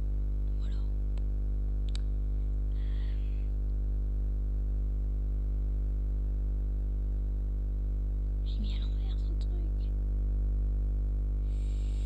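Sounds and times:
low electrical hum: 0:00.0 - 0:12.0
soft hiss: 0:11.4 - 0:12.0.

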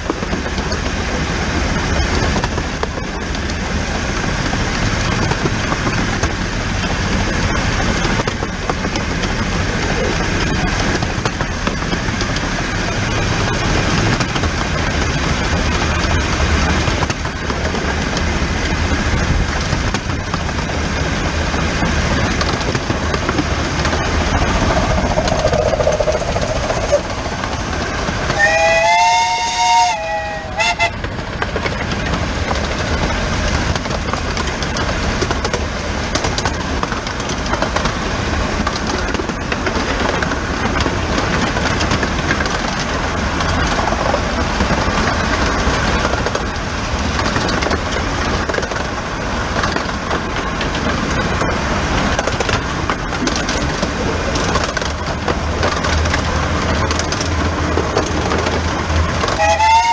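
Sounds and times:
steam locomotive running gear clatter: 0:00.0 - 0:59.9
two-tone locomotive whistle: 0:28.3 - 0:31.0, 0:59.3 - 0:59.9.

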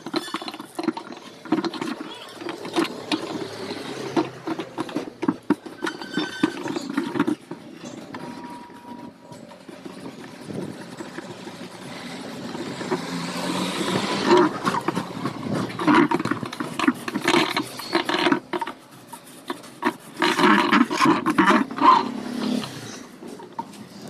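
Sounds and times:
cloth scrubbing plastic tub: 0:09.6 - 0:22.7.

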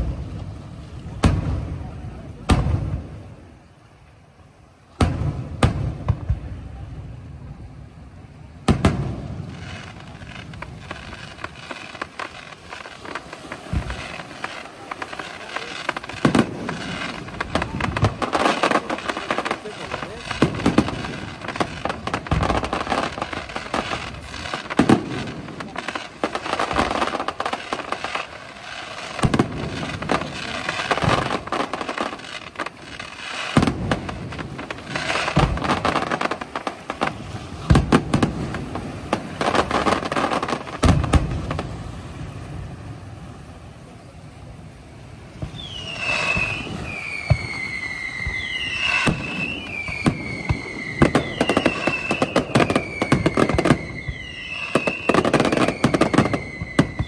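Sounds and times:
fireworks bangs and crackling: 0:00.0 - 0:57.0
falling firework whistles: 0:08.6 - 0:42.4, 0:45.4 - 0:57.0.

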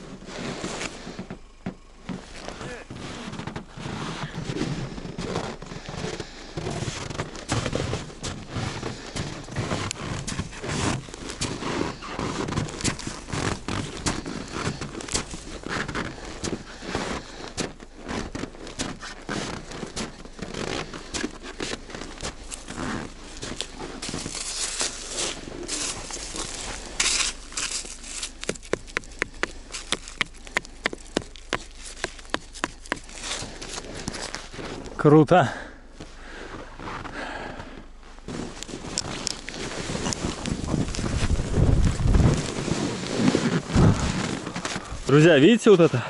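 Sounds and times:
footsteps crunching snow: 0:00.0 - 0:46.0
hand brushing snow off rock: 0:02.2 - 0:34.9, 0:38.3 - 0:46.0
clothing rustle: 0:37.9 - 0:45.4.

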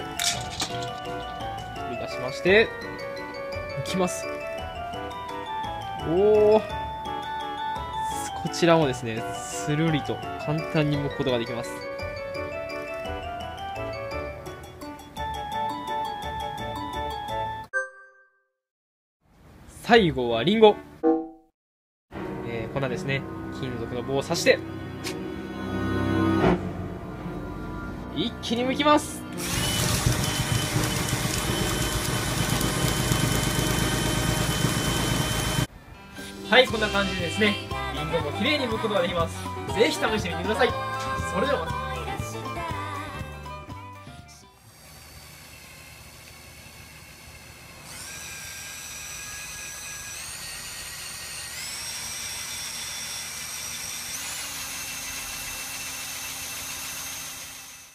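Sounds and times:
peeler stripping apple skin: 0:29.4 - 0:35.5, 0:44.6 - 0:57.8
cordless drill whining: 0:29.4 - 0:35.7, 0:44.5 - 0:57.9.

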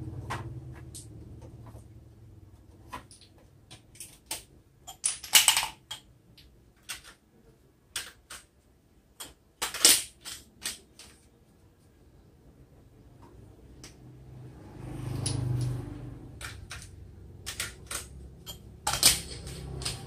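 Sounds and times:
clatter: 0:15.0 - 0:20.0.

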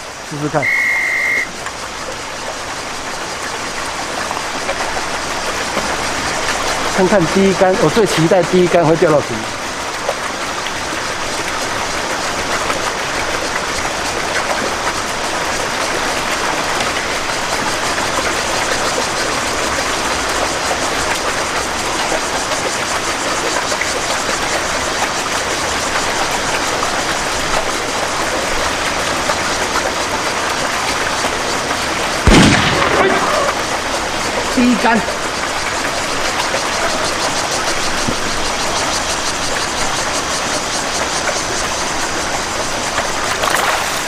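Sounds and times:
steady rushing hiss: 0:00.0 - 0:44.0.

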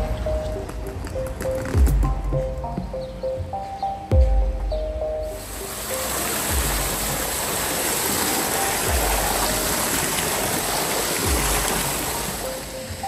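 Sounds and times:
dull low bumps: 0:00.0 - 0:05.4, 0:06.5 - 0:07.4, 0:08.9 - 0:09.6, 0:11.2 - 0:12.0
river water rushing: 0:05.3 - 0:13.0.

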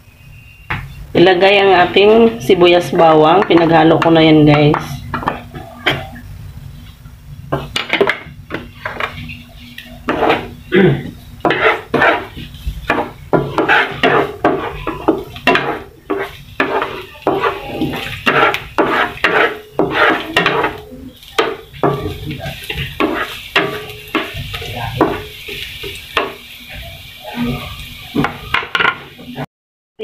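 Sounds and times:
spatula scraping a frying pan: 0:05.0 - 0:06.2, 0:07.5 - 0:29.3.

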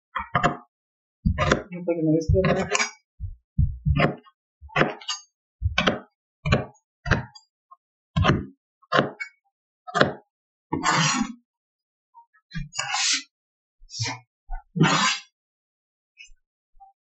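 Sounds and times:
knife chopping on cutting board: 0:01.3 - 0:01.7, 0:02.3 - 0:05.1, 0:05.7 - 0:07.3, 0:08.2 - 0:09.2
knife scraping cutting board: 0:02.3 - 0:02.9, 0:10.8 - 0:11.2, 0:12.8 - 0:13.3, 0:14.8 - 0:15.3.

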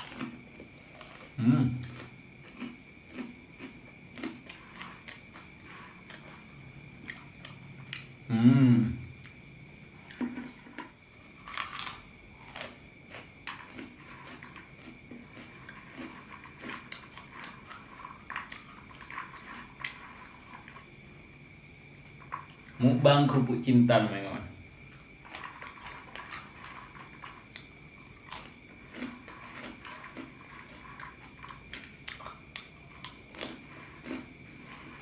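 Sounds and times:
crunching dry crackers: 0:00.0 - 0:08.2, 0:09.2 - 0:23.5, 0:24.7 - 0:35.0
person humming briefly: 0:08.3 - 0:09.1.

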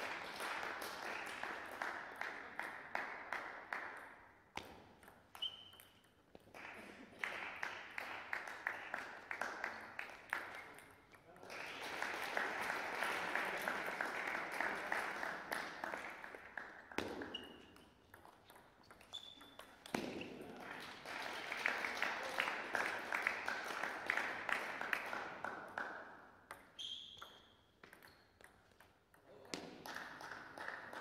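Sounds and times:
brief high squeaks: 0:19.0 - 0:19.6, 0:26.8 - 0:28.2.

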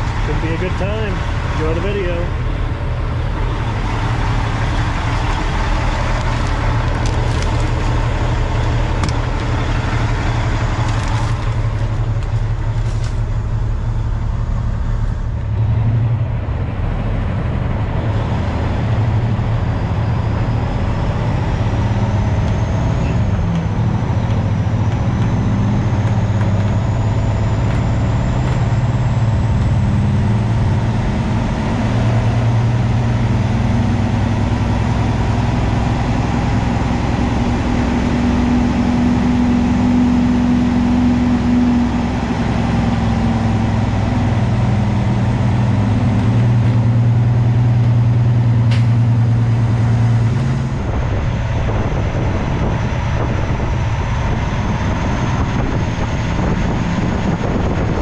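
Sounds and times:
road noise: 0:00.0 - 0:58.0
truck engine drone: 0:00.0 - 0:58.0.

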